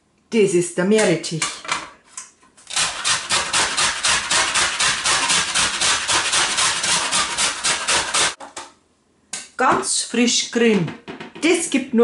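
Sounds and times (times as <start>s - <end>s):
grating on metal grater: 2.7s - 8.4s.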